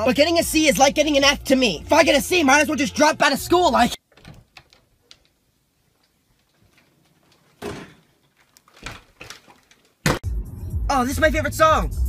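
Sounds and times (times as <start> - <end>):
door clicks: 4.0 - 5.4.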